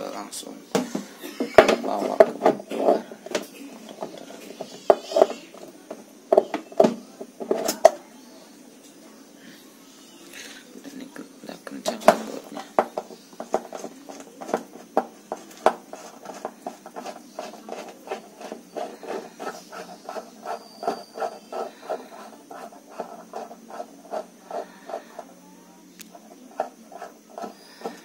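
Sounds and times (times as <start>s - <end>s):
screwdriver clicking and scraping: 15.3s - 25.2s, 26.0s - 28.0s.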